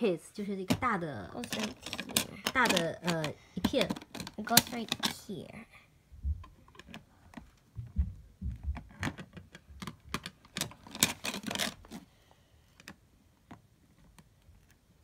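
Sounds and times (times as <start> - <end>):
plastic bricks clicking and rattling: 1.4 - 5.2, 8.8 - 12.0
dull knocks on plastic case: 7.7 - 9.9.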